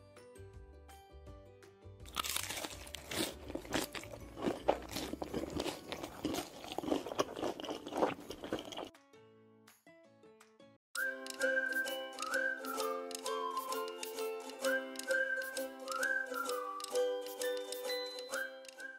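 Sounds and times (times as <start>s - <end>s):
crunching fried food: 2.0s - 8.9s
light background music: 8.9s - 18.9s.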